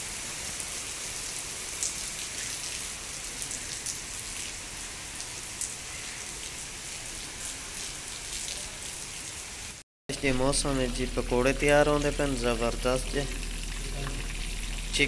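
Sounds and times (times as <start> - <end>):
steady rain hiss: 10.4 - 15.0
raindrops ticking close by: 10.5 - 15.0.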